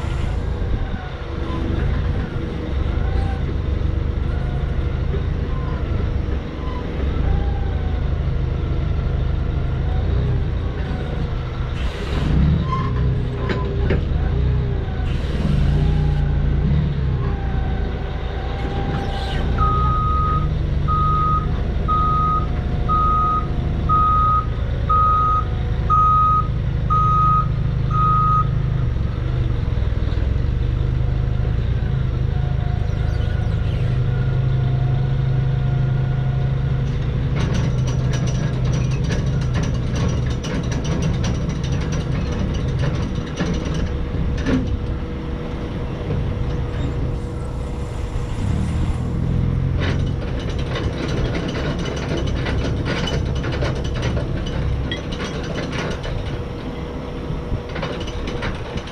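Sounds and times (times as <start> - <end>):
forklift engine hum: 0.0 - 58.9
reversing alarm beeping: 19.5 - 28.6.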